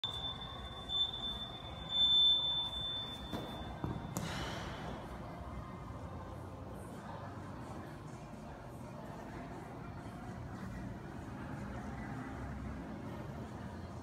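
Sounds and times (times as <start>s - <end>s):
high electronic beep tone: 0.0s - 4.2s.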